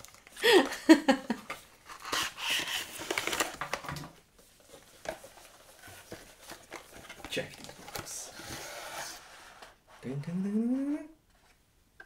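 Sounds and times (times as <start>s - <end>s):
packaging rustling and crinkling: 0.0s - 0.4s, 1.5s - 9.2s.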